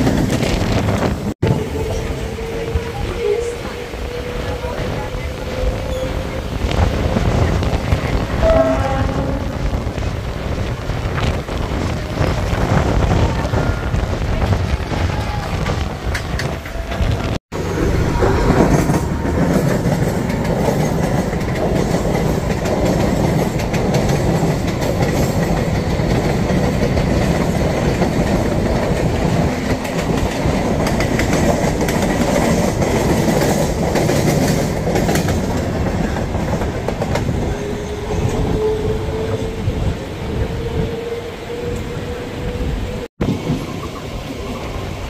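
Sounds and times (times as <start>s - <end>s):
train wheels running over rails: 9.2s - 39.8s.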